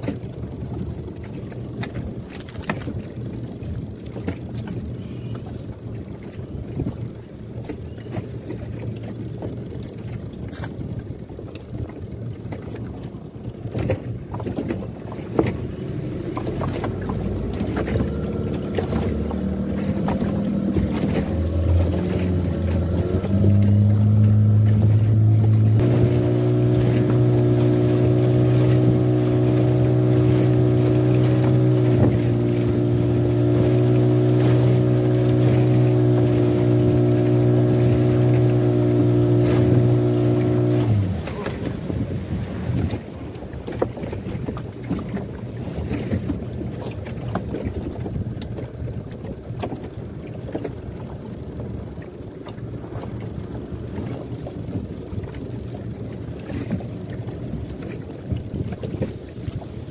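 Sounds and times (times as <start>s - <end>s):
hull slapping on waves: 0.0s - 59.9s
outboard motor running: 0.0s - 59.9s.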